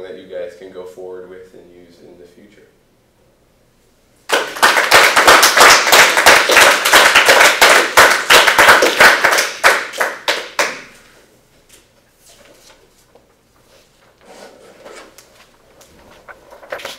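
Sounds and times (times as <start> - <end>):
audience clapping: 4.3 - 11.1.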